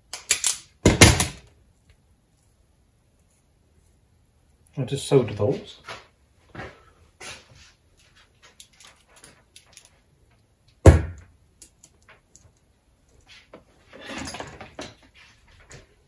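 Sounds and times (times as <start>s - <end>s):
solder wire rattling rustle: 7.8s - 10.8s.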